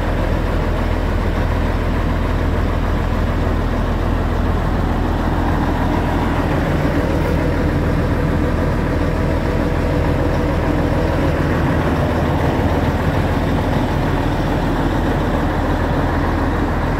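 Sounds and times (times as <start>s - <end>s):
diesel excavator engine idling: 0.0s - 16.9s.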